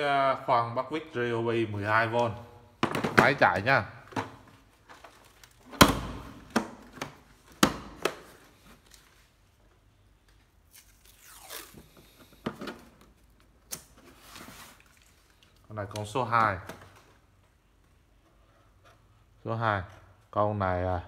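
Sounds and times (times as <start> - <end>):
knocks and clicks of drill handling: 2.8 - 3.4.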